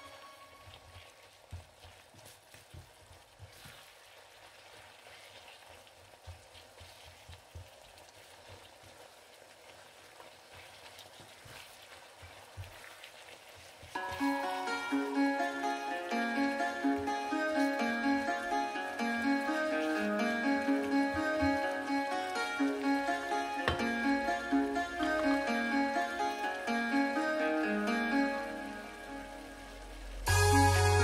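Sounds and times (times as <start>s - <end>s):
wooden spatulas knocking pan: 23.6s - 24.1s.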